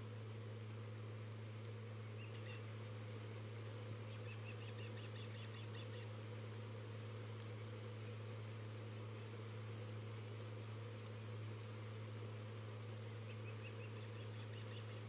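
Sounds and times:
low electrical hum: 0.0 - 15.0
bird chirping: 2.0 - 2.8, 4.0 - 6.1, 13.2 - 15.0.

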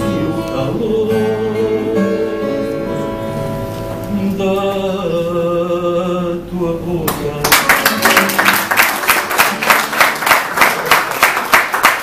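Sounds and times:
person singing: 0.0 - 3.2
applause: 7.4 - 12.0.

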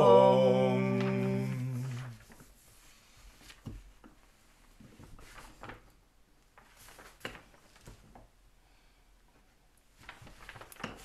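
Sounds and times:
rustling of parchment and cloth: 1.8 - 5.9, 6.6 - 8.3, 10.0 - 11.0.

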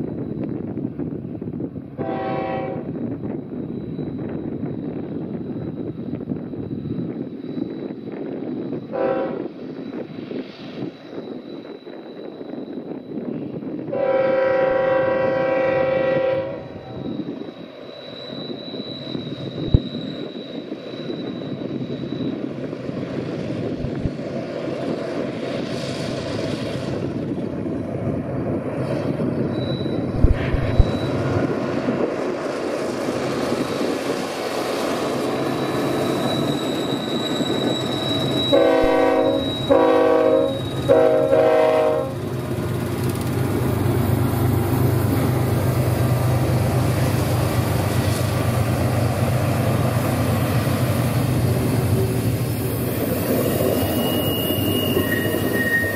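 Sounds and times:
train air horn blasts: 2.0 - 2.9, 8.9 - 9.5, 13.9 - 17.0, 38.5 - 42.3
diesel locomotive rumble: 18.0 - 55.9.

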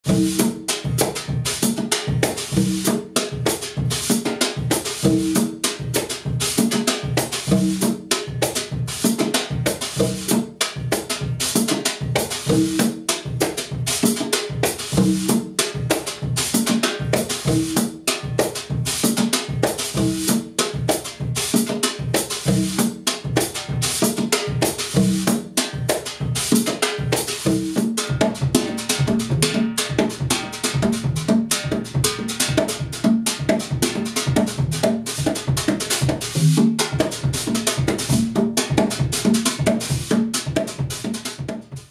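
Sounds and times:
congas open and slap tones: 0.0 - 41.9
bass drum pattern: 2.1 - 4.1, 27.4 - 41.9.

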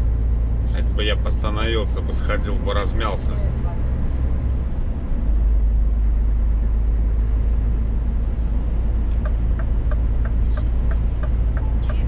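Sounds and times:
truck engine drone: 0.0 - 12.0
even ticking: 9.1 - 12.0.

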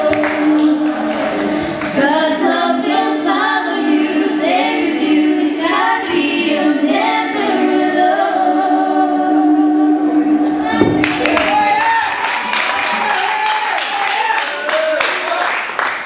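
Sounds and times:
women singing over pa: 0.0 - 11.5.

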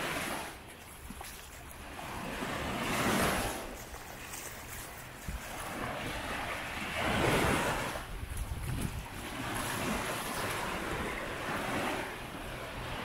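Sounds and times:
sea waves breaking: 0.0 - 13.0
wind rumbling on microphone: 0.0 - 13.0.

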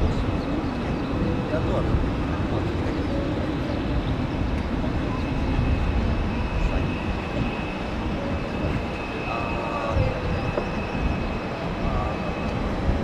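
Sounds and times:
distant jet engines running: 0.0 - 13.0.

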